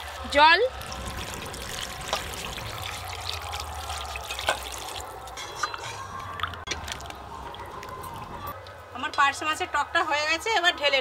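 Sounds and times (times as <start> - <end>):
water pouring and splashing: 0.0 - 8.5.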